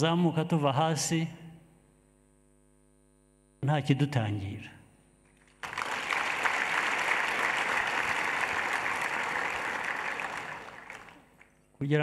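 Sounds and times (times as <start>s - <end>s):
large audience applauding: 5.4s - 11.6s.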